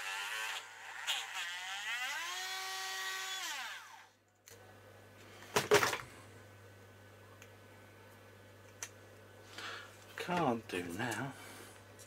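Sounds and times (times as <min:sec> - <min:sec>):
electric drill motor whining: 0:00.0 - 0:04.1.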